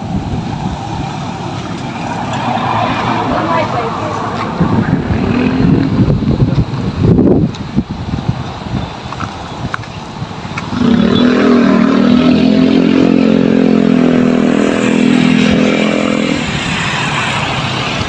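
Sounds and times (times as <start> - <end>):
vehicle engine drone passing: 0.0 - 6.5, 10.6 - 18.0.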